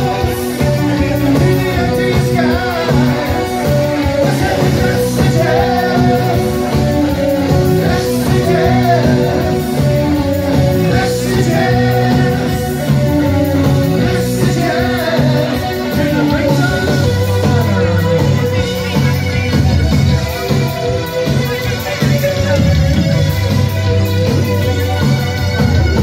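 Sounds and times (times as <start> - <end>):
man singing lead vocal: 0.0 - 19.1
rock band playing live: 0.0 - 26.0.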